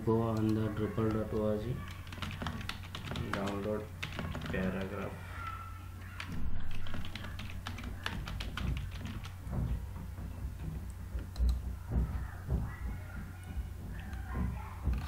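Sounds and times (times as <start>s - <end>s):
steady low hum: 1.8s - 15.0s.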